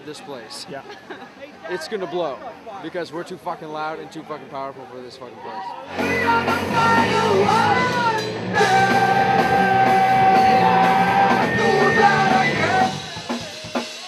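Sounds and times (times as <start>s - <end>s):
electric guitar: 5.9s - 13.4s
person singing: 5.9s - 13.4s
punk rock band playing live: 5.9s - 14.0s.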